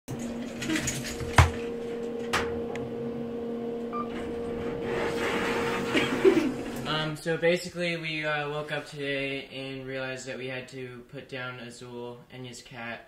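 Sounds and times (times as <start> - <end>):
elevator electrical hum: 0.1 - 7.4.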